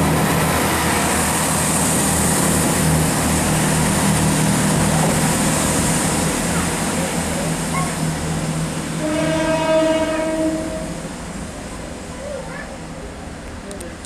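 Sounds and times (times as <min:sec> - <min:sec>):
diesel train rumbling: 0:00.0 - 0:14.0
train horn blast: 0:09.0 - 0:11.0.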